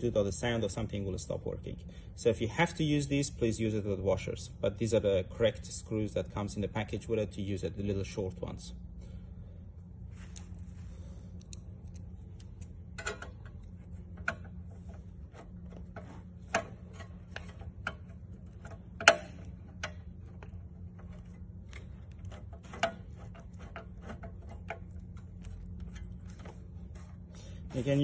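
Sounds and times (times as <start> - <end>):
metal tapping on metal: 15.9 - 26.1.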